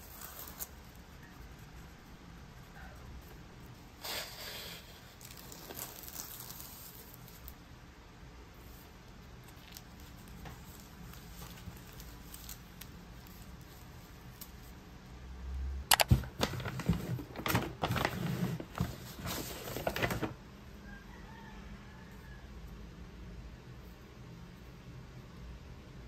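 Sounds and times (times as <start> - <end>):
paper bag crinkling and rustling: 5.1 - 7.6, 9.4 - 14.7, 15.9 - 20.4
faint paper handling: 9.4 - 14.8.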